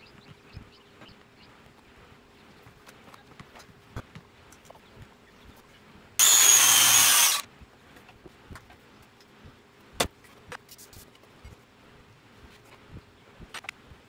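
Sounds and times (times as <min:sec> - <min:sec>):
circular saw motor whine: 0:06.2 - 0:07.4.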